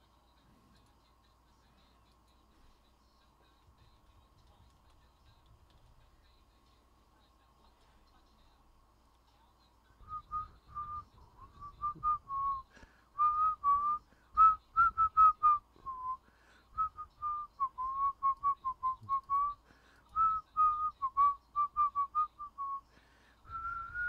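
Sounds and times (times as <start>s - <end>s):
man whistling a tune: 10.0s - 12.6s, 13.2s - 16.2s, 16.8s - 19.6s, 20.2s - 22.8s, 23.4s - 24.0s.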